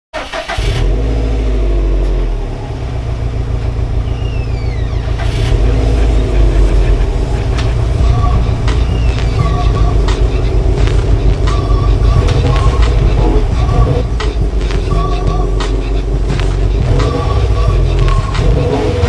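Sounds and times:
vehicle engine rumbling: 0:00.2 - 0:19.0
sharp clicks: 0:07.5 - 0:15.8.

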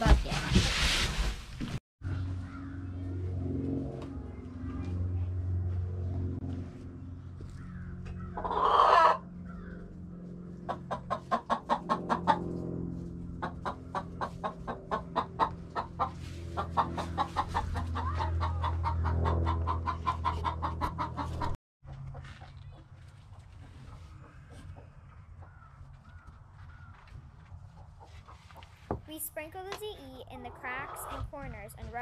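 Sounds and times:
hen clucking: 0:08.3 - 0:09.2, 0:10.6 - 0:12.4, 0:13.4 - 0:25.6, 0:30.4 - 0:31.3.

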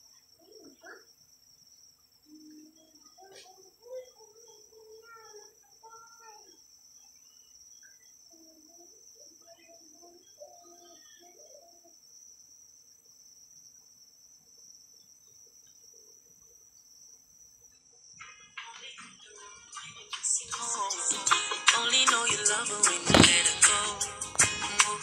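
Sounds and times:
crickets trilling: 0:00.0 - 0:25.0
faint muffled voice murmuring: 0:00.3 - 0:01.1, 0:02.2 - 0:06.6, 0:08.3 - 0:12.0.

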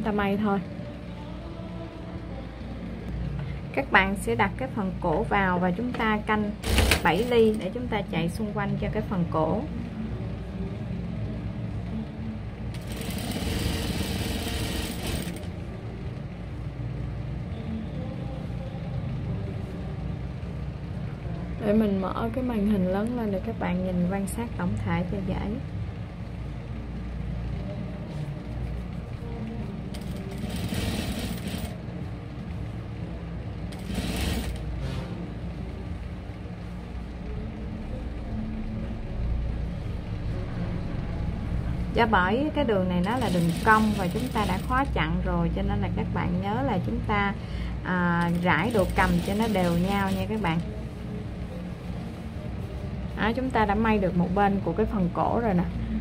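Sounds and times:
fast machine stitching: 0:06.6 - 0:07.6, 0:12.7 - 0:15.5, 0:29.9 - 0:31.8, 0:33.7 - 0:34.6, 0:43.0 - 0:44.9, 0:48.3 - 0:50.4
sewing machine motor hum: 0:06.6 - 0:07.6, 0:12.7 - 0:15.7, 0:29.9 - 0:31.8, 0:33.7 - 0:35.0, 0:43.0 - 0:44.8.

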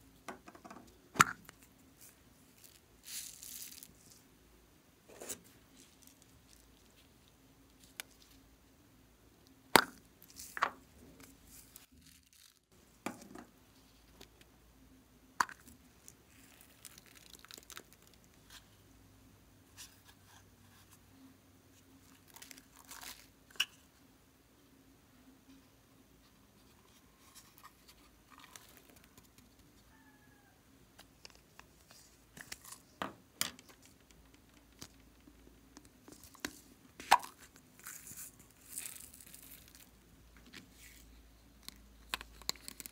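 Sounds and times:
beads rustling: 0:01.5 - 0:04.2, 0:05.2 - 0:08.4, 0:10.2 - 0:12.7, 0:16.0 - 0:18.2, 0:36.0 - 0:42.9.

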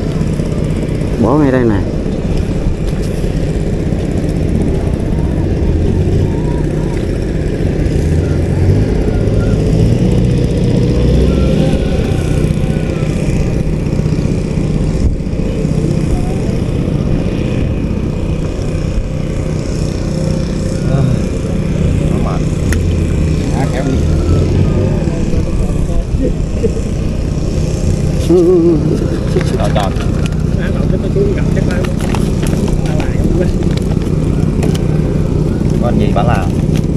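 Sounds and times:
small engine running: 0:00.0 - 0:36.9
faint voices: 0:23.3 - 0:36.6.

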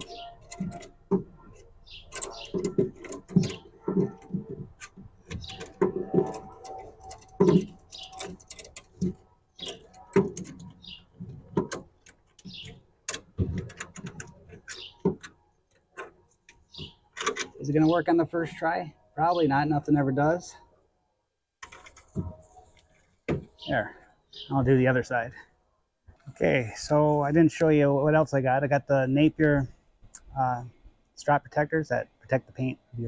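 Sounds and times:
hardware clicking and rattling: 0:00.0 - 0:17.7, 0:21.6 - 0:23.7.

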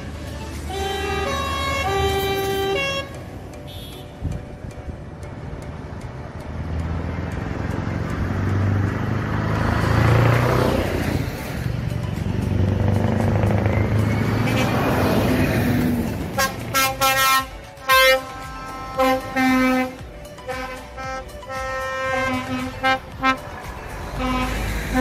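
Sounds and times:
lorries driving past: 0:00.0 - 0:25.0
truck air horn blasts: 0:00.7 - 0:04.2, 0:14.4 - 0:15.2, 0:16.3 - 0:23.6, 0:24.2 - 0:25.0.

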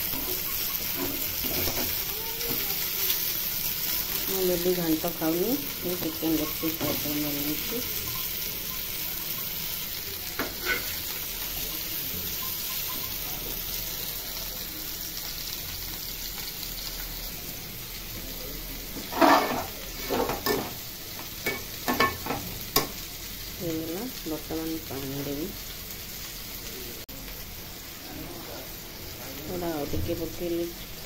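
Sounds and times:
spatula knocking and scraping pan: 0:00.0 - 0:02.6, 0:10.4 - 0:11.0, 0:19.0 - 0:23.0
chicken sizzling in oil: 0:00.0 - 0:31.0.

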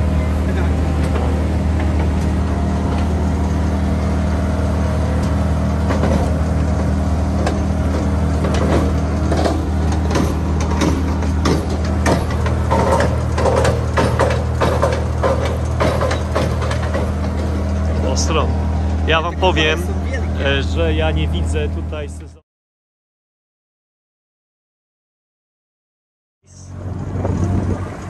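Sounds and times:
boat engine droning: 0:00.0 - 0:22.4, 0:26.4 - 0:28.0
rapid knocks and clatters: 0:05.2 - 0:18.2.

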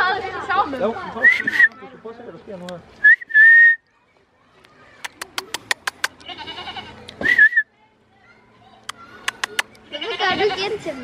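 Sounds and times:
person whistling: 0:01.2 - 0:01.7, 0:03.0 - 0:03.8, 0:07.2 - 0:07.6
sharp clicks: 0:05.0 - 0:06.3, 0:08.8 - 0:09.8
goat bleating: 0:06.0 - 0:07.0, 0:09.8 - 0:10.8.

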